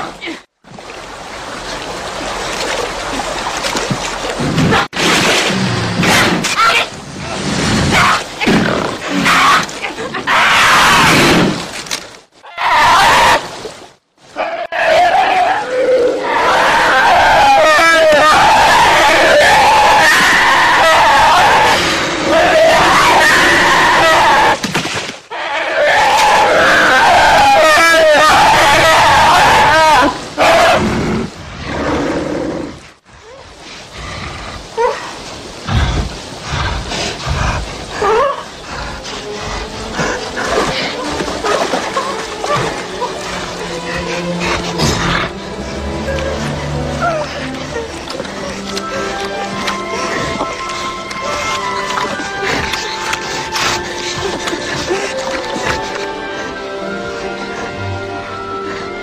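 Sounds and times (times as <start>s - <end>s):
bears snarling and growling: 25.3s - 35.0s, 42.5s - 57.8s
animal snarls and hisses: 30.4s - 41.0s.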